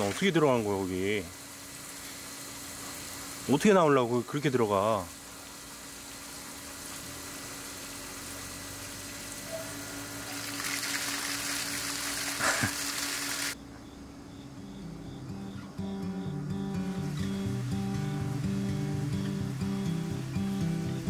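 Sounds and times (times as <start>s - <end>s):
water splashing in pool: 0.0s - 0.6s, 6.8s - 13.6s
soft acoustic guitar music: 14.5s - 21.0s.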